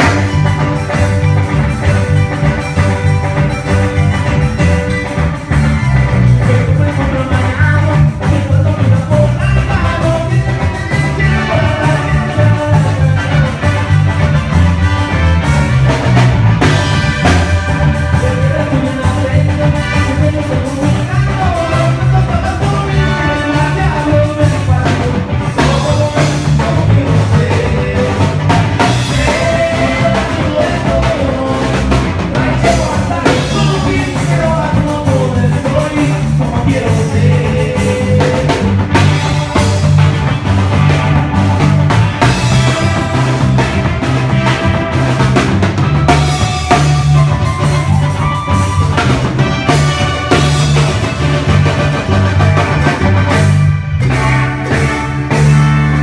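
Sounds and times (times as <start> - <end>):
electronic keyboard melody: 0.0 - 26.4
drum kit beat: 0.0 - 56.0
repeating bass line: 0.0 - 56.0.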